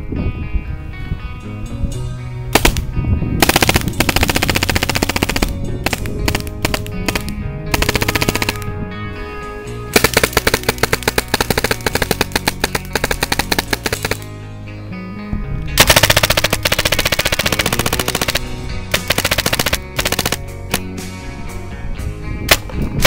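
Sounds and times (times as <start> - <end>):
background music: 0.0 - 23.0
paintball marker rapid fire: 2.6 - 8.7, 9.9 - 14.3, 15.8 - 20.9.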